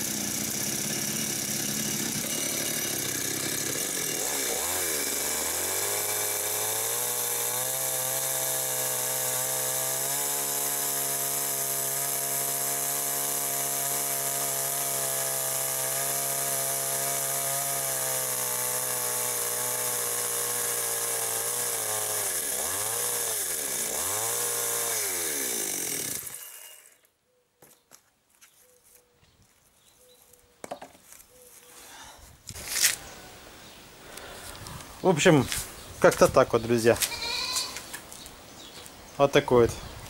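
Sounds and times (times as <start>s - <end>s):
chainsaw cutting wood: 0.0s - 27.1s
boards being handled: 30.6s - 31.7s.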